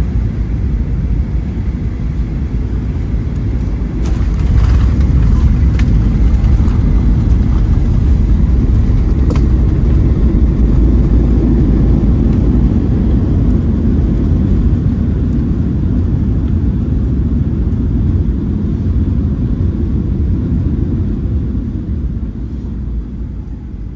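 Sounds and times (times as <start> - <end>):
airliner engines rumbling: 0.0 - 23.9
wheels rolling on runway: 3.3 - 13.7.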